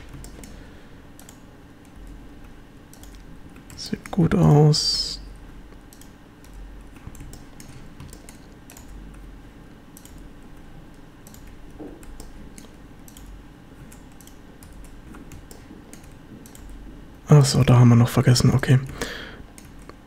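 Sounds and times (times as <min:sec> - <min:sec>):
keyboard and mouse clicking: 0:00.0 - 0:04.2, 0:05.7 - 0:09.3, 0:09.9 - 0:16.8, 0:18.8 - 0:20.0
low steady hum: 0:00.0 - 0:20.0.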